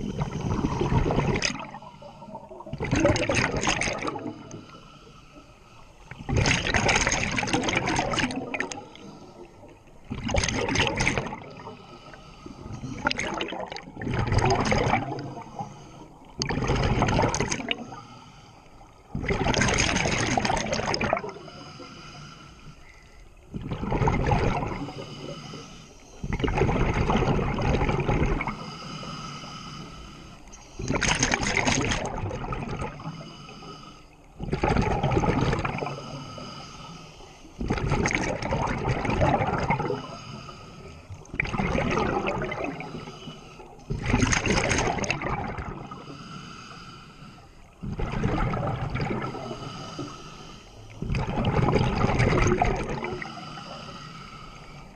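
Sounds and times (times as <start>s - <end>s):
gurgling rush of exhaled bubbles: 0.0s - 4.6s, 6.1s - 9.0s, 10.0s - 11.8s, 12.8s - 15.4s, 16.3s - 18.0s, 19.1s - 21.4s, 23.5s - 25.1s, 26.2s - 28.6s, 30.8s - 33.1s, 34.4s - 36.1s, 37.6s - 40.1s, 41.3s - 43.0s, 43.9s - 46.0s, 47.8s - 49.8s, 51.0s - 53.3s
diver breathing through regulator: 0.0s - 10.0s, 11.1s - 14.0s, 14.6s - 23.5s, 24.4s - 26.5s, 28.0s - 31.4s, 32.8s - 34.3s, 35.1s - 54.9s.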